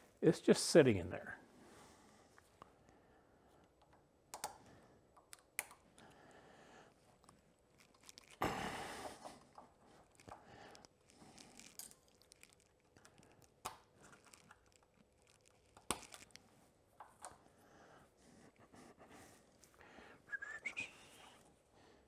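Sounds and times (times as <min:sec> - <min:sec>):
small metal clicks: 0:09.4 - 0:16.4.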